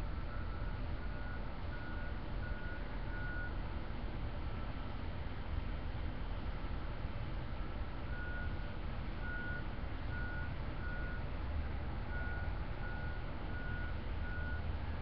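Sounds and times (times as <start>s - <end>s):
engine low rumble: 0.0s - 15.0s
truck reversing alarm beeping: 0.1s - 3.6s, 8.1s - 11.3s, 12.1s - 14.7s.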